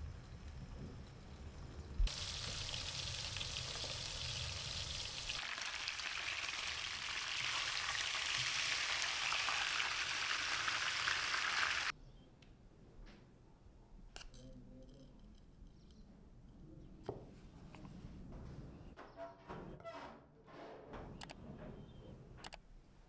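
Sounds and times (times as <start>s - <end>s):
food sizzling in hot oil: 1.8s - 11.9s.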